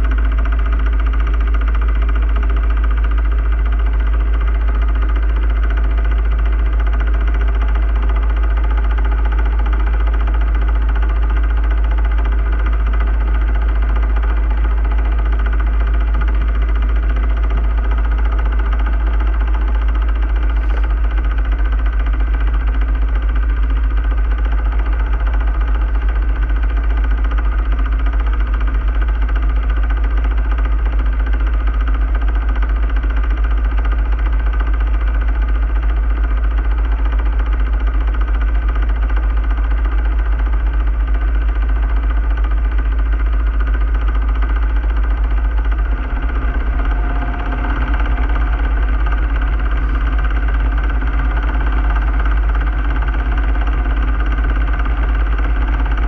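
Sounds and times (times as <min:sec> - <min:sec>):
boat diesel engine humming: 0:13.6 - 0:22.6, 0:43.6 - 0:56.0.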